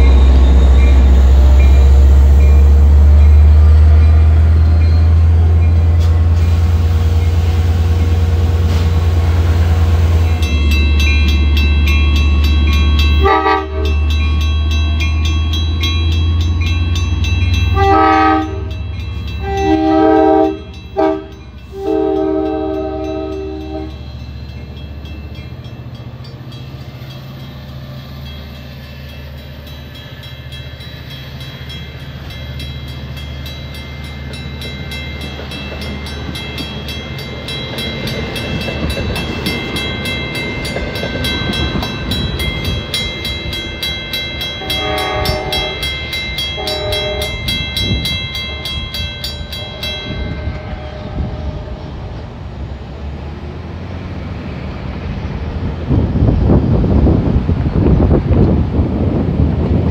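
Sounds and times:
train rumbling past: 0.0s - 59.9s
train horn blasts: 13.2s - 14.2s, 17.7s - 24.1s, 44.5s - 49.0s, 49.6s - 52.3s.

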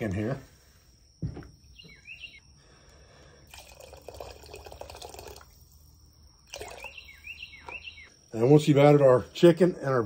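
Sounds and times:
liquid pouring into pot: 3.5s - 5.7s, 6.4s - 6.9s.

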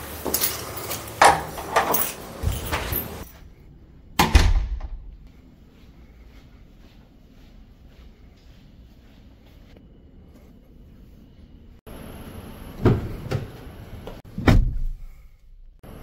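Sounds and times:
heavy door thumps: 4.2s - 5.2s, 14.3s - 15.0s.

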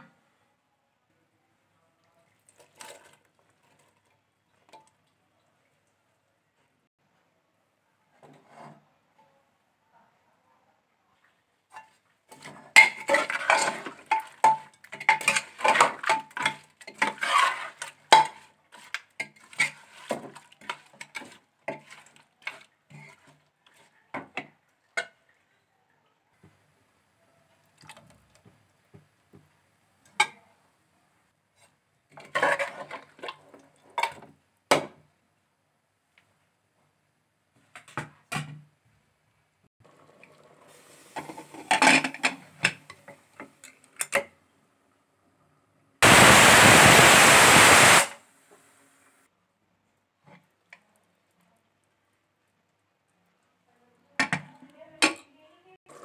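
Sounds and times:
metal ladle scraping pot: 11.7s - 23.9s, 31.6s - 33.6s.

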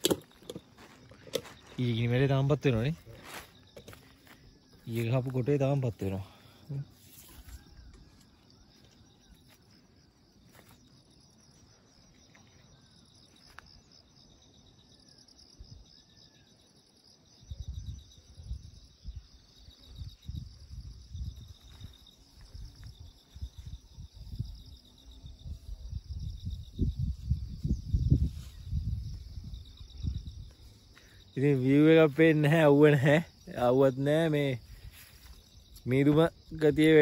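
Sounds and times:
insects trilling: 0.0s - 37.0s
faint bird chirps: 11.4s - 20.4s.

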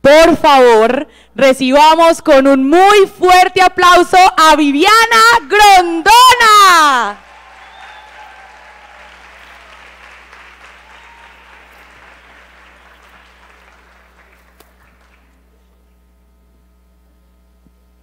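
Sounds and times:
faint sound system hum: 0.0s - 18.0s
audience applauding: 7.2s - 15.8s.

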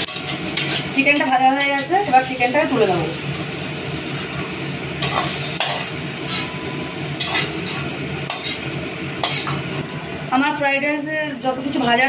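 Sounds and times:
metal spoon scraping a pan: 0.0s - 2.6s, 4.1s - 6.6s, 7.2s - 9.7s
chicken sizzling in hot oil: 0.0s - 9.8s.

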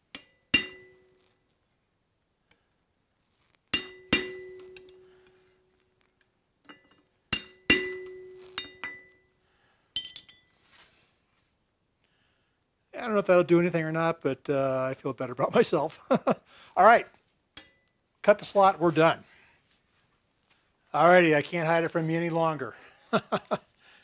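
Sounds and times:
hammer striking chisel on metal: 0.1s - 1.4s, 3.7s - 5.1s, 6.7s - 9.2s, 10.0s - 10.5s, 17.6s - 17.9s.

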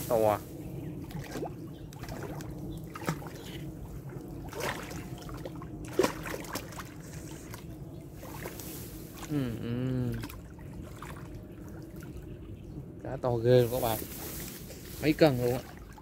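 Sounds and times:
fish thrashing and splashing: 1.0s - 9.3s.

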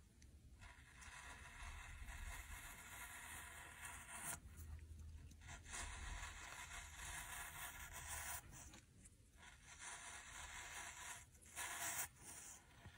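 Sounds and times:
razor blade scraping frozen fruit: 5.5s - 8.8s, 9.4s - 12.9s.

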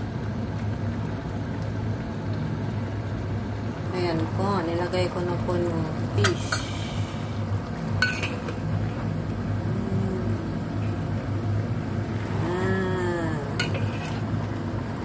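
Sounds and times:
low mechanical hum: 0.0s - 15.0s
wok simmering: 0.0s - 15.0s
person humming: 9.6s - 10.6s, 12.3s - 13.6s.

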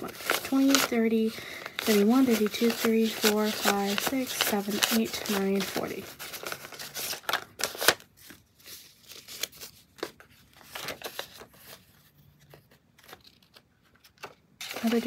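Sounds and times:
paper bills being counted: 0.0s - 8.3s, 13.1s - 15.0s.

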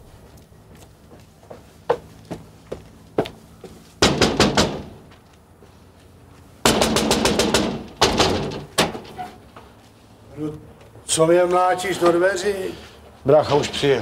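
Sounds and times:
fists pounding on a door: 4.0s - 5.0s, 6.6s - 9.0s.

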